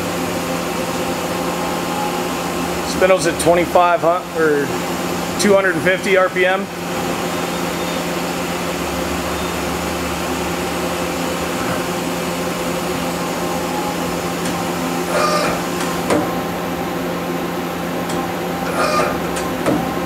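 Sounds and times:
lathe machine hum: 0.0 - 20.0
tool turret whine: 0.0 - 20.0.

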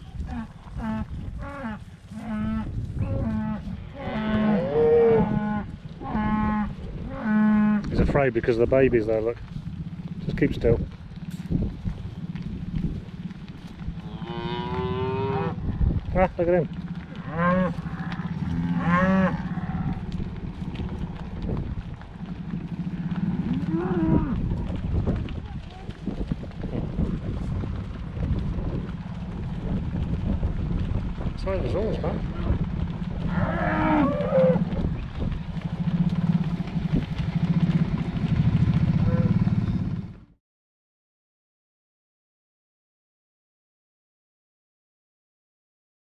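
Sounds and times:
cattle mooing: 0.2 - 8.0, 14.0 - 20.2, 22.2 - 24.7, 33.2 - 35.0, 35.8 - 40.1.

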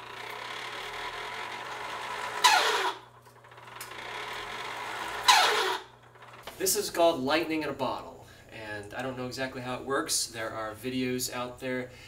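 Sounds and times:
generator humming: 0.0 - 7.9
screech falling in pitch: 2.4 - 3.0, 5.2 - 5.9.

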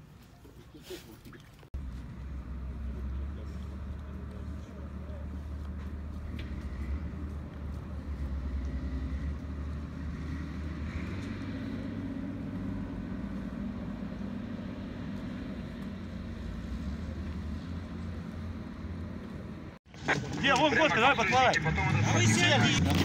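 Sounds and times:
engine running low rumble: 1.8 - 19.8.

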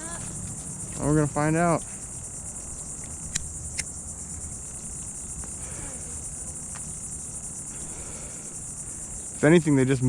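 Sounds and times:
insect chorus chirring: 0.0 - 10.0
sharp clicks: 3.0 - 3.9.

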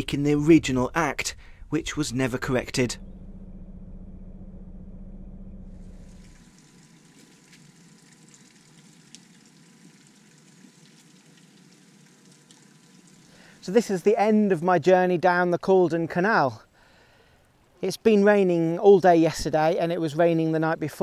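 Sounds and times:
boat engine droning: 0.0 - 6.6.

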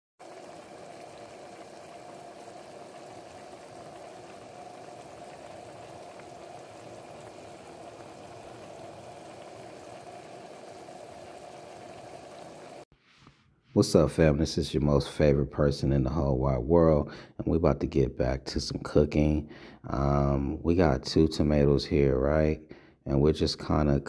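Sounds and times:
water boiling in a pot: 0.2 - 12.9.

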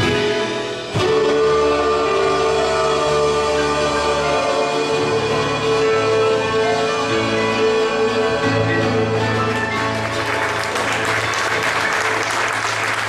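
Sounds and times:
audience applause: 9.2 - 13.0.

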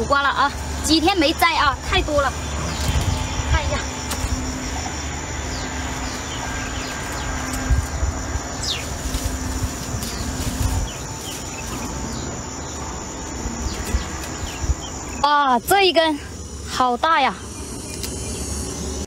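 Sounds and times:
birds chirping: 0.0 - 19.0
high insect drone: 0.0 - 19.0
thumps and rustling of vines: 8.7 - 12.2.

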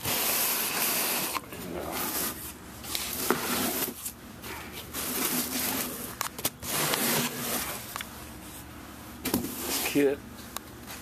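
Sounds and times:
rubbing against cardboard box: 0.0 - 7.9.

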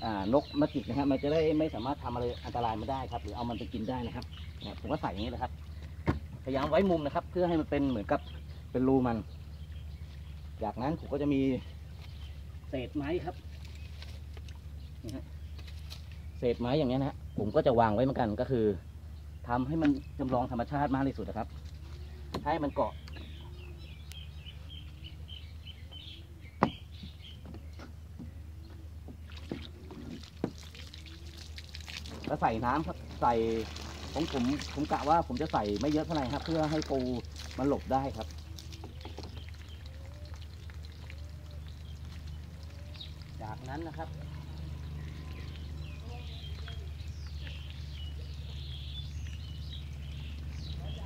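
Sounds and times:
bird chirping: 0.0 - 51.0
steady low hum: 0.0 - 51.0
wood knocking in boat: 6.0 - 6.5, 26.6 - 30.6.

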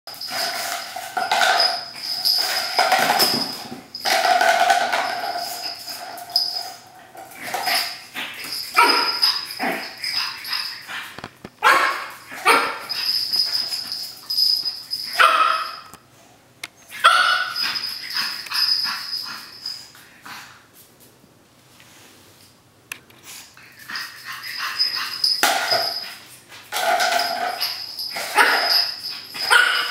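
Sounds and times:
puppy barking and yipping: 8.7 - 10.8, 11.6 - 13.1, 15.1 - 15.8, 16.9 - 19.6, 27.5 - 29.9.

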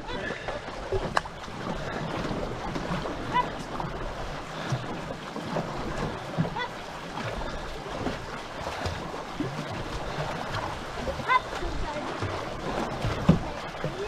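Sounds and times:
canoe paddles pulling through water: 0.0 - 14.0
water washing past hull: 0.0 - 14.0.

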